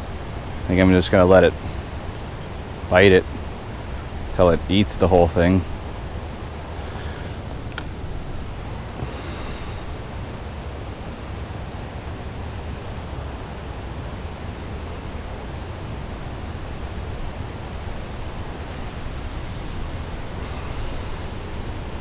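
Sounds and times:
wind buffeting microphone: 0:00.0 - 0:22.0
sharp click: 0:07.7 - 0:07.9.

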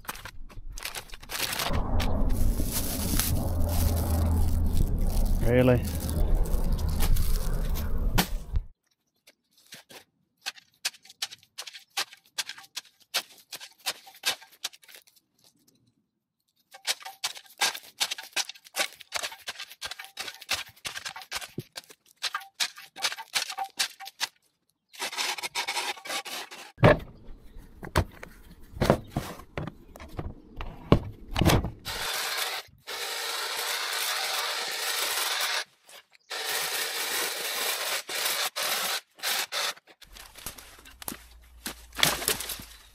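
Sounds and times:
tool scraping soil on concrete: 0:09.3 - 0:15.6, 0:16.5 - 0:26.8, 0:31.9 - 0:42.9
hedge trimmer cutting: 0:31.9 - 0:35.7, 0:36.3 - 0:39.8.

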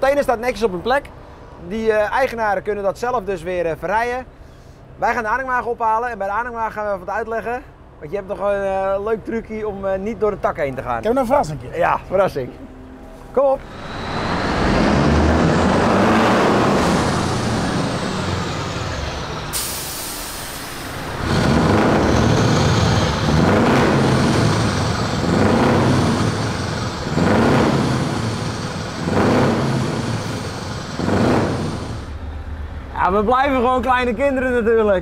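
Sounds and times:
air brake hiss: 0:04.4 - 0:04.9, 0:19.4 - 0:21.5
diesel truck engine revving: 0:13.6 - 0:32.9.

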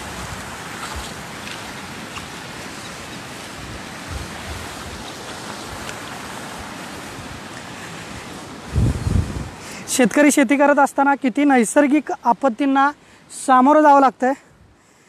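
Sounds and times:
floodwater rushing: 0:00.0 - 0:12.4
wind bumps on microphone: 0:03.5 - 0:05.9, 0:08.6 - 0:09.6.

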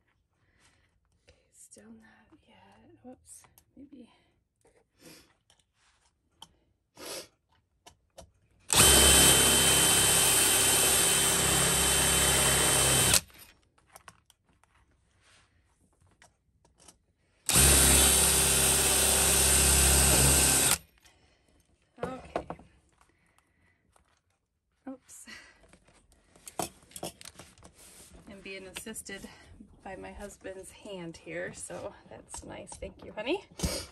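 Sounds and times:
cordless drill running: 0:08.7 - 0:13.4, 0:17.5 - 0:20.8.

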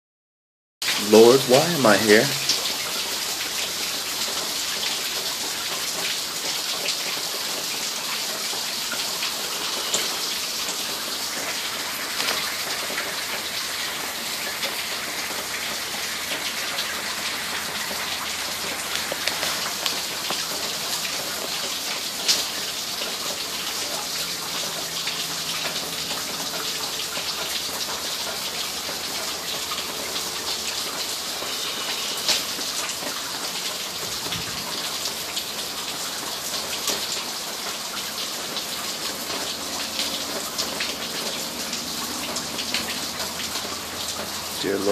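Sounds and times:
steady rain hissing: 0:00.8 - 0:44.9
raindrop taps: 0:12.1 - 0:13.0, 0:18.6 - 0:22.5.

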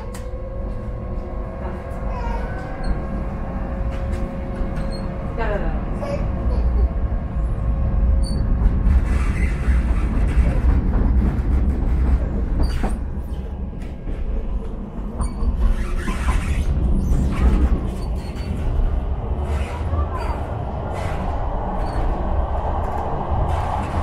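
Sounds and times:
tram wheels rumbling on rail: 0:00.0 - 0:24.0.

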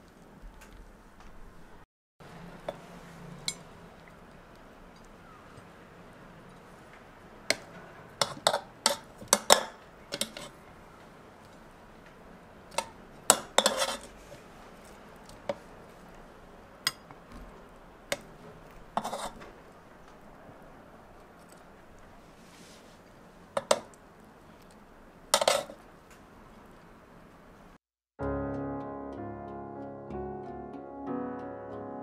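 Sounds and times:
metal tongs tapping ceramic plate: 0:07.5 - 0:10.5, 0:12.7 - 0:14.0, 0:16.9 - 0:17.2, 0:23.6 - 0:23.9.

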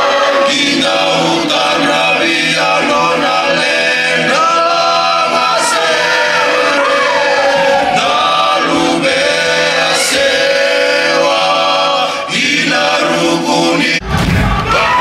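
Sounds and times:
men singing in harmony: 0:00.0 - 0:14.0
sudden loud burst: 0:14.0 - 0:15.0.

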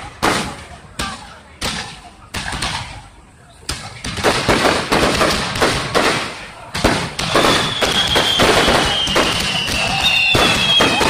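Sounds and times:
fireworks bangs and crackling: 0:00.0 - 0:11.0
fireworks high whistles: 0:07.1 - 0:11.0.

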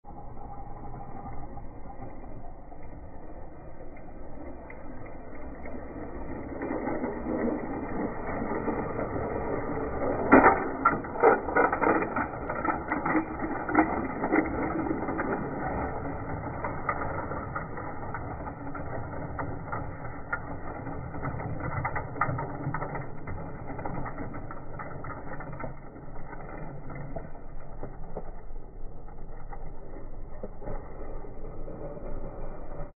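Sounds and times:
toy train rattling on plastic track: 0:05.5 - 0:29.9.

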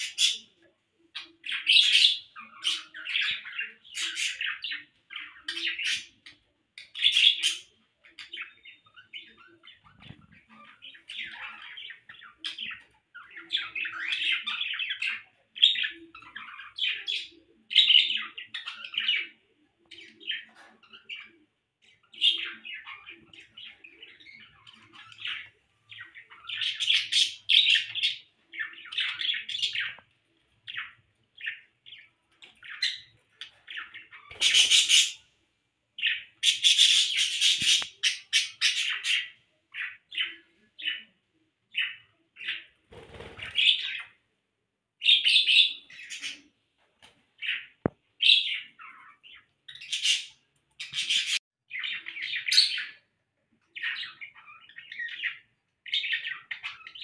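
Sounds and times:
budgerigars chattering: 0:00.0 - 0:00.5, 0:32.6 - 0:35.2, 0:36.0 - 0:41.0.

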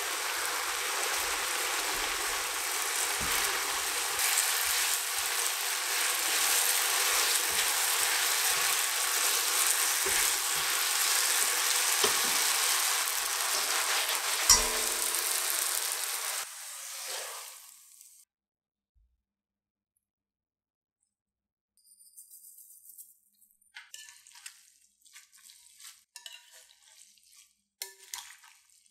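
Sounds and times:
noodles sizzling in a wok: 0:00.0 - 0:18.3, 0:23.9 - 0:28.9
tongs knocking against pan: 0:14.5 - 0:15.5
noodles sliding into a glass bowl: 0:16.8 - 0:17.7.

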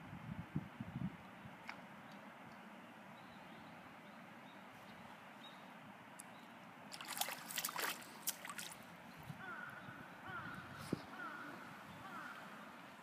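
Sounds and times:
fish splashing in water: 0:06.9 - 0:08.9.

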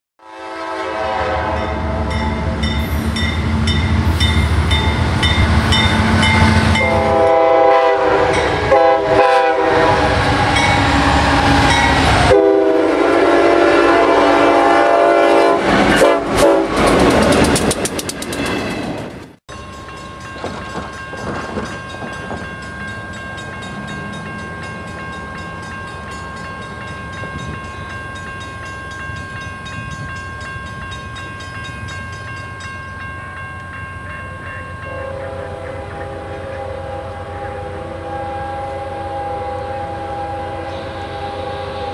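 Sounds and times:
locomotive horns chords: 0:00.2 - 0:02.7, 0:04.8 - 0:16.9, 0:34.8 - 0:41.9
freight train rumble: 0:00.4 - 0:41.9
crossing bell ringing: 0:01.5 - 0:09.7, 0:10.5 - 0:14.2, 0:18.3 - 0:38.7.

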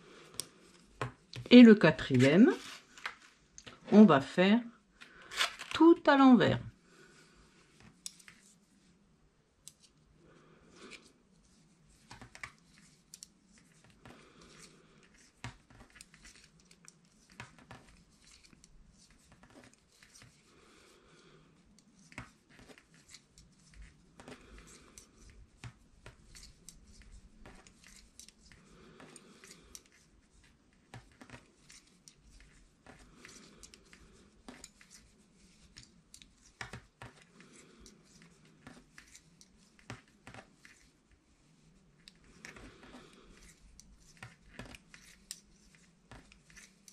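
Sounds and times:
knitting needles clicking: 0:07.9 - 0:08.4, 0:42.0 - 0:46.9.

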